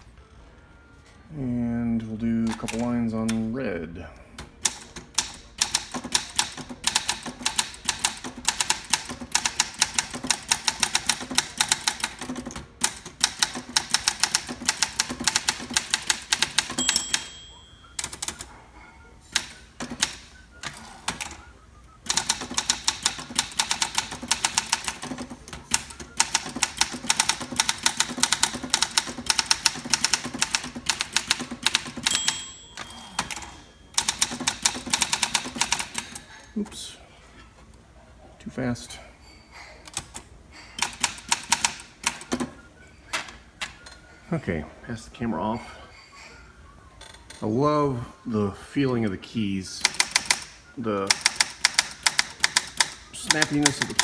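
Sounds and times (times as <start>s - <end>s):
typewriter carriage return: 2.3s - 3.4s, 4.6s - 18.5s, 19.3s - 21.4s, 22.0s - 36.3s, 39.8s - 43.8s, 49.8s - 54.0s
typewriter margin bell: 13.3s - 20.1s, 22.1s - 36.1s, 51.1s - 54.0s.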